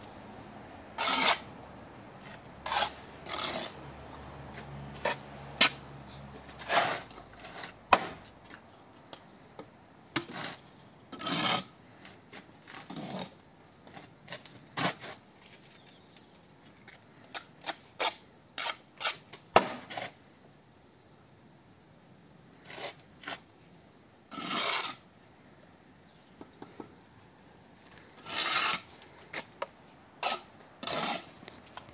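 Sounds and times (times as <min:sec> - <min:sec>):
trowel scraping mortar: 0:01.0 - 0:01.5, 0:02.2 - 0:03.8, 0:04.9 - 0:08.2, 0:10.2 - 0:13.4, 0:17.2 - 0:20.2, 0:22.6 - 0:23.5, 0:24.3 - 0:25.1, 0:28.2 - 0:29.6, 0:30.2 - 0:31.7.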